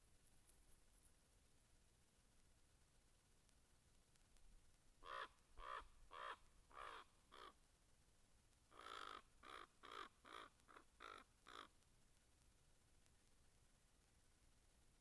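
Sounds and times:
crow cawing: 0:05.0 - 0:07.6, 0:08.7 - 0:11.7.

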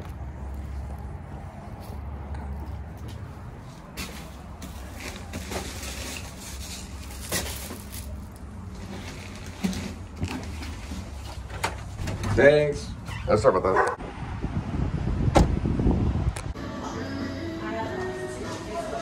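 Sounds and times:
footsteps on concrete: 0:00.0 - 0:04.9
plastic bag rustling: 0:04.0 - 0:11.5.

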